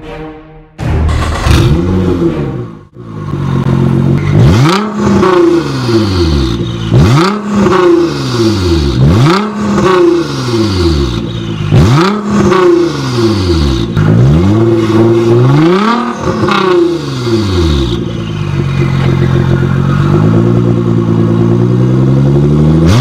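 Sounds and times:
car engine revving: 0.8s - 23.0s.

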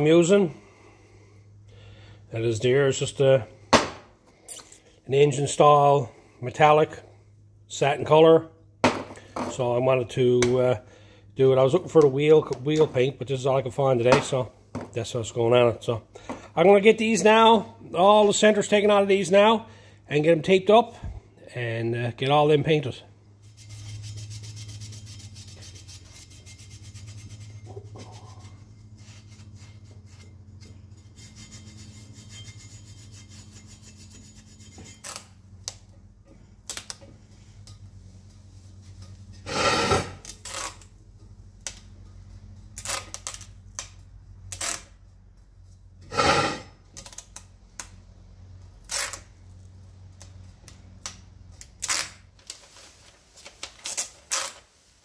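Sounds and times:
steady low hum: 0.0s - 51.9s
tape ripping: 39.5s - 40.9s, 42.8s - 44.9s, 48.8s - 49.3s, 51.0s - 52.7s, 53.5s - 54.7s.

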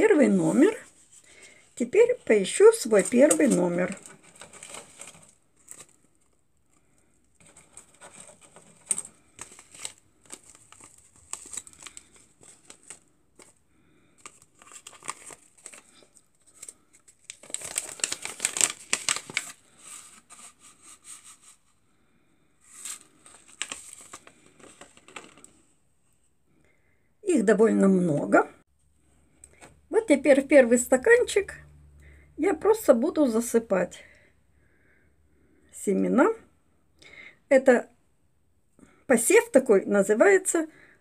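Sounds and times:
paper seed packets crinkling: 0.0s - 21.6s, 22.6s - 25.7s.

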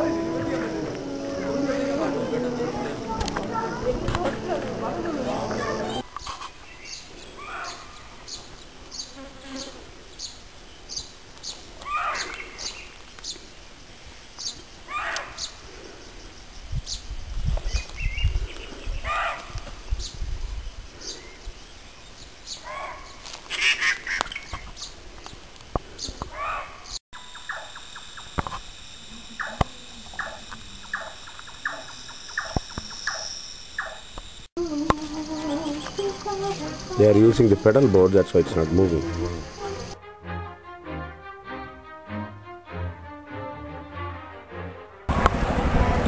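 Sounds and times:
muntjac barking: 7.4s - 8.1s, 11.8s - 12.4s, 14.9s - 15.6s, 19.0s - 19.6s, 22.6s - 24.2s, 26.3s - 27.8s, 29.4s - 34.0s, 34.6s - 40.0s.

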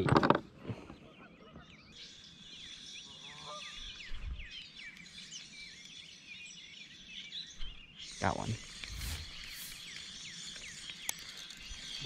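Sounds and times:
songbirds singing and chirping: 0.0s - 12.0s.

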